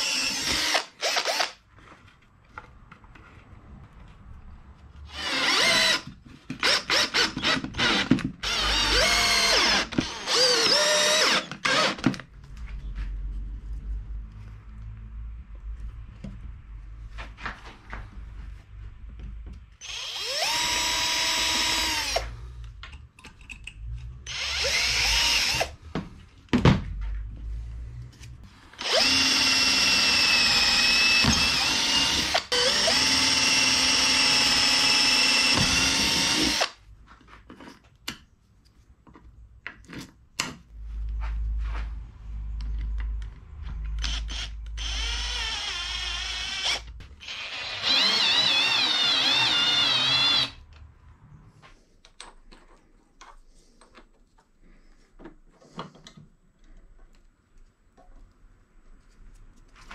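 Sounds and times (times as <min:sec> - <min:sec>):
cordless drill drilling wood: 0:00.0 - 0:01.6, 0:05.1 - 0:12.1, 0:19.8 - 0:22.4, 0:24.3 - 0:25.8, 0:28.8 - 0:36.8, 0:44.0 - 0:50.6.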